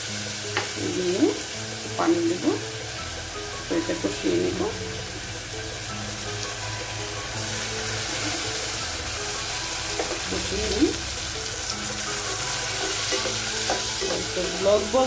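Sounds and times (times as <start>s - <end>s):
onions sizzling in oil: 0.0s - 15.0s
metal spatula stirring: 11.6s - 15.0s.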